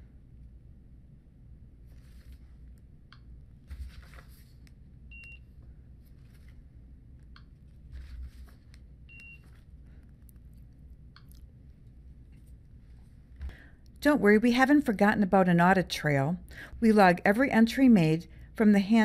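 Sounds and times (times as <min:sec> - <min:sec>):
low steady hum: 0:00.0 - 0:19.0
rustling noise: 0:01.8 - 0:02.8, 0:03.6 - 0:04.7, 0:06.0 - 0:06.8, 0:07.6 - 0:11.0
barcode scanner beeping: 0:05.1 - 0:05.4, 0:09.1 - 0:09.4.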